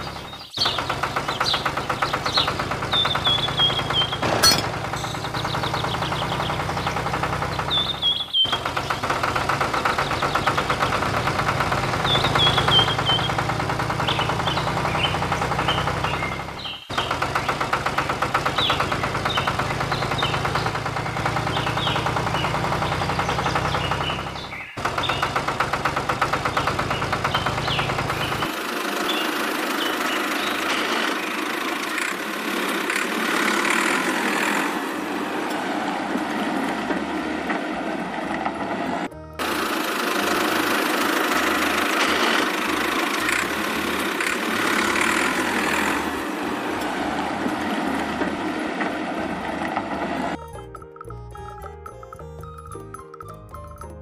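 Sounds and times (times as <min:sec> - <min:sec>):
toy tractor motor chugging: 0:00.0 - 0:53.8
high chirps or squeaks: 0:03.1 - 0:05.5.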